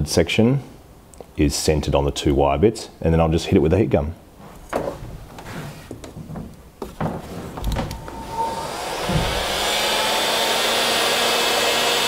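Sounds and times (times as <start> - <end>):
knocks and clicks: 6.0 - 8.2
heat gun blowing hiss: 8.0 - 12.0.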